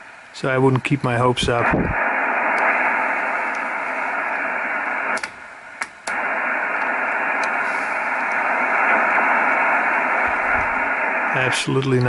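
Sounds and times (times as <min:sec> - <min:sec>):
radio receiver hiss: 0:00.0 - 0:12.0
clicks: 0:05.1 - 0:07.6.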